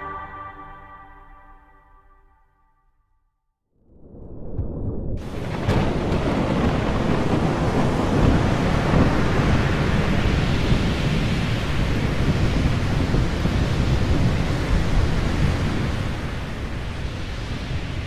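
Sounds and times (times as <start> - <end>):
deep rumble: 3.9 - 9.2
wind: 3.9 - 18.0
heavy waves rushing: 5.2 - 18.0.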